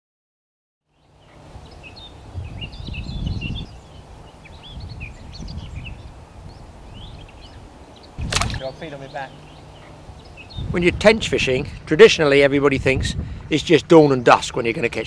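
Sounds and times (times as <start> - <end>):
small birds singing: 0.9 - 15.0
wind rumble on microphone: 1.6 - 8.8, 10.1 - 13.9.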